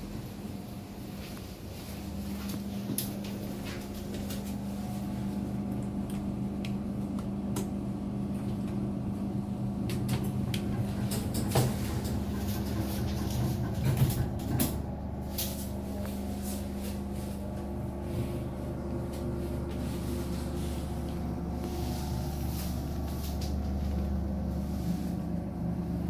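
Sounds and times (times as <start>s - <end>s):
lift car hum: 0.0s - 26.0s.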